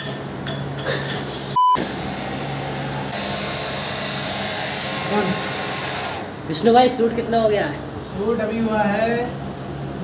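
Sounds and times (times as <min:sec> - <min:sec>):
short electronic beep: 0:01.6 - 0:01.8.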